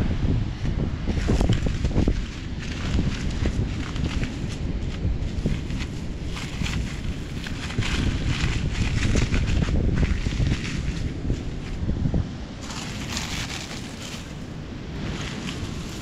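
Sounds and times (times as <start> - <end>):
wind buffeting microphone: 0.0 - 16.0
dry seaweed rustling: 0.4 - 16.0
plastic bag crinkling: 12.6 - 16.0.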